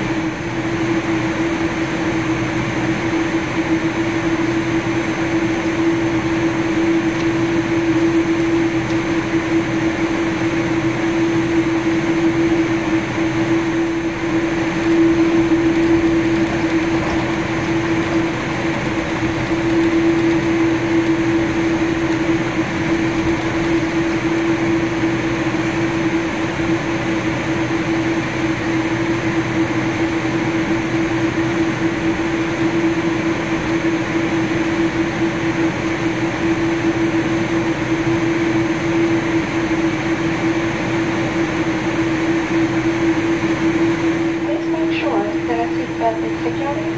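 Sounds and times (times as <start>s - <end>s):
jet engines idling hum: 0.0s - 46.9s
ventilation air rushing: 12.6s - 26.6s.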